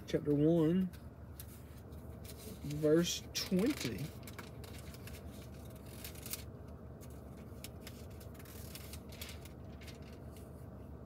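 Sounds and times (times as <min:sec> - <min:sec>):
thin pages turning: 0:01.4 - 0:02.8, 0:03.4 - 0:10.5.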